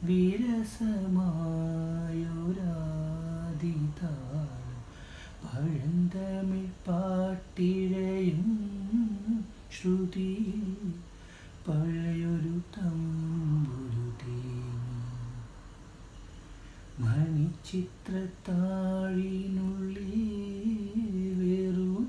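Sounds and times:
breaths: 4.9 - 5.4, 11.1 - 11.6, 16.5 - 17.0.

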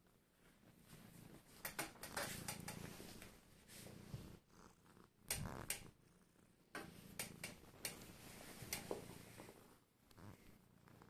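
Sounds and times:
cat purring: 0.0 - 11.0.

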